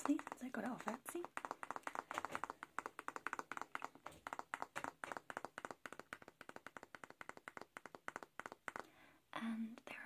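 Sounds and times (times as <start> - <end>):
fingernails flicking hairbrush pins: 0.0 - 8.9.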